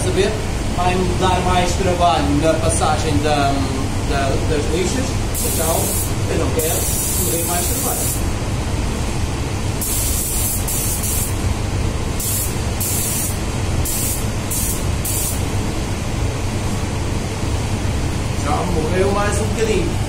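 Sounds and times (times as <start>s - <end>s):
steady low hum: 0.0s - 20.0s
spray gun hissing: 5.4s - 8.2s, 9.8s - 11.4s, 12.2s - 15.5s.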